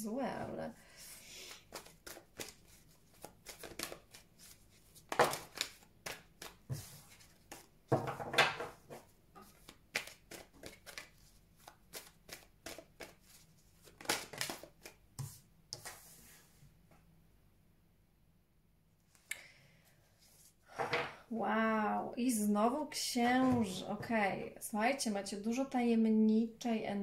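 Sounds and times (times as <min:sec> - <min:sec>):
cards being shuffled: 0:01.4 - 0:07.7, 0:08.8 - 0:16.0.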